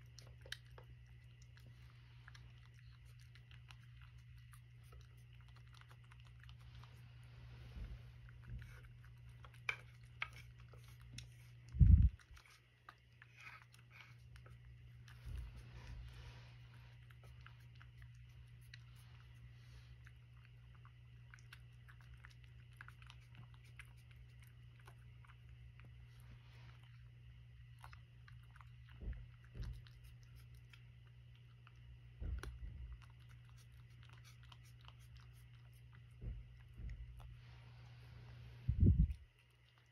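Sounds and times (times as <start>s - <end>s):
spoon scraping cat food dish: 0.0s - 20.0s, 21.4s - 25.2s, 29.4s - 30.9s, 32.4s - 38.3s
cat chewing and licking: 0.0s - 39.9s.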